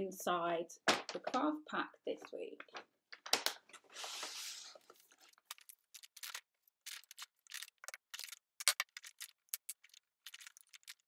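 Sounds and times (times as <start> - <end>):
paper bag rustling: 3.8 - 7.8.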